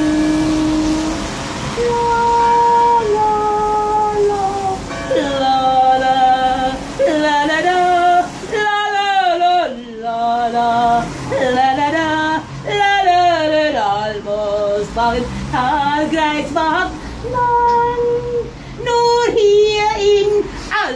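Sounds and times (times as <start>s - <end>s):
woman singing unaccompanied: 0.0s - 20.9s.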